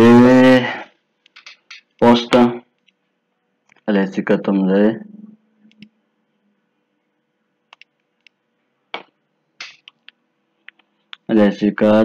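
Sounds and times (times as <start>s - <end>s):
computer mouse clicking: 9.0s - 11.3s.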